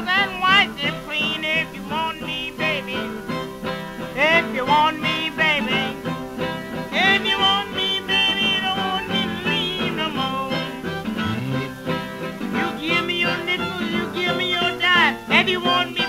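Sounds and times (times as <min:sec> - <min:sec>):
acoustic blues guitar: 0:00.0 - 0:16.0.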